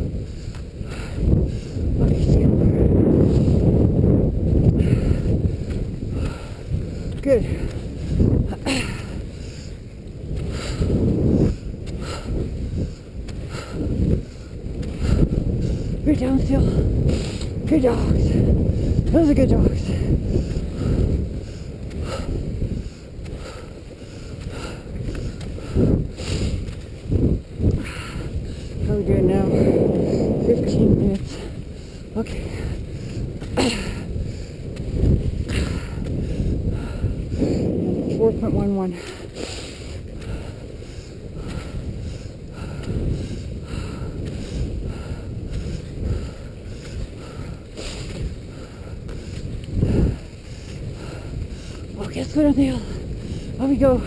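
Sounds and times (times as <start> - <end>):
wind on microphone: 0.0 - 54.0
skis sliding on snow: 14.2 - 35.7, 37.4 - 42.4, 44.2 - 54.0.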